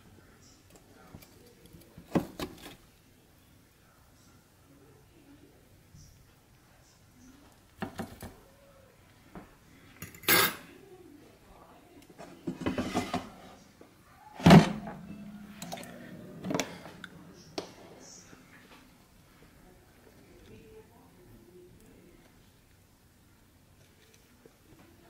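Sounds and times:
basket scraping: 12.5s - 13.6s, 14.4s - 17.0s
air fryer basket clattering: 14.4s - 17.0s.

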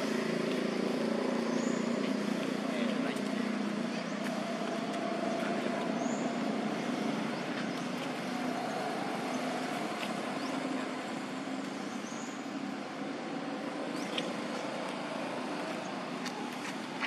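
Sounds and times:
outdoor background hum: 0.0s - 17.0s.

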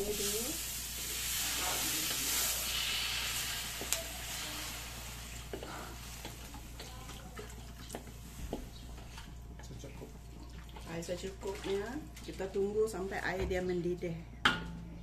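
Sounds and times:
water sizzling in hot oil: 0.0s - 9.2s.

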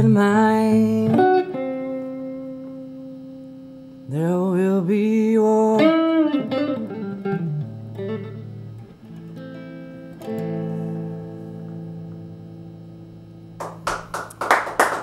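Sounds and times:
electric guitar through amplifier: 0.0s - 15.0s
people clapping: 13.6s - 15.0s.

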